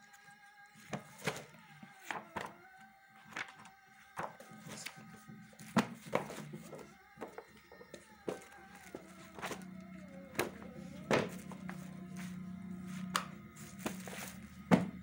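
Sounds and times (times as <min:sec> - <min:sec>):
faint background music: 0:00.0 - 0:15.0
pages rustling: 0:00.2 - 0:02.6, 0:03.2 - 0:15.0
books thudding: 0:00.8 - 0:02.6, 0:05.6 - 0:09.7, 0:10.3 - 0:15.0.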